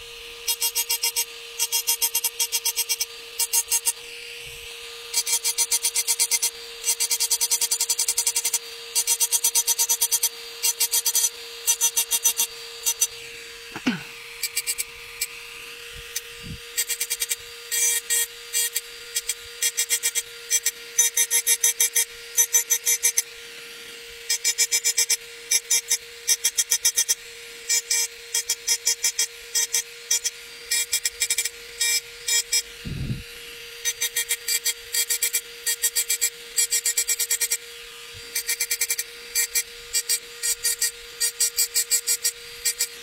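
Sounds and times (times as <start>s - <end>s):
rotary engraver whine: 0.0s - 43.0s.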